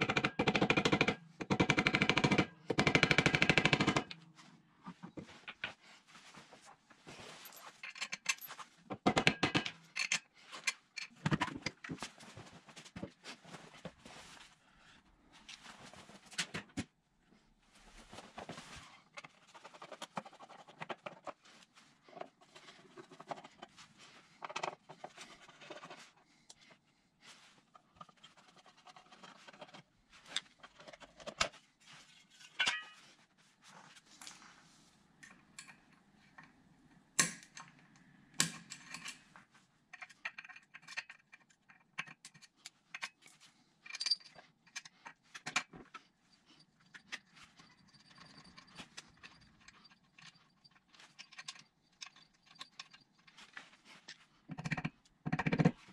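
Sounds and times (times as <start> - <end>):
tools set down on tiled floor: 32.4 - 33.1
screwdriver on metal: 46.9 - 53.5.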